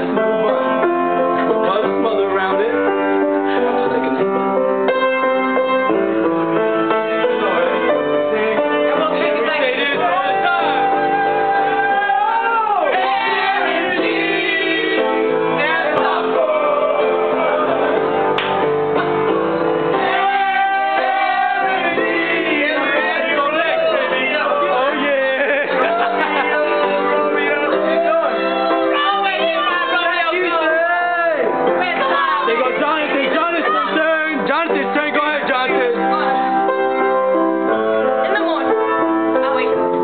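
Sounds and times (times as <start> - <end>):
instrumental accompaniment: 0.0 - 40.0
person singing: 20.0 - 34.8.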